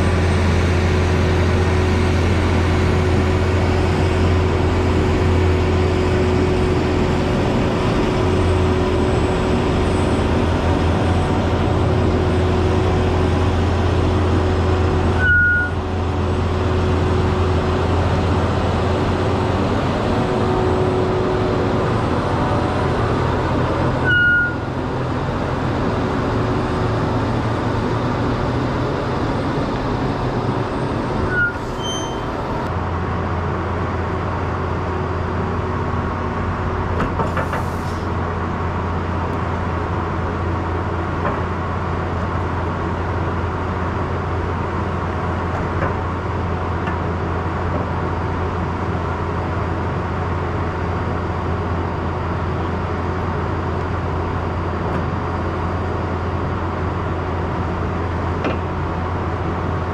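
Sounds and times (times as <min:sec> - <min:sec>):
trolleybus running: 0:00.0 - 0:59.9
short high squeak: 0:15.2 - 0:15.8, 0:24.0 - 0:24.7, 0:31.3 - 0:32.6.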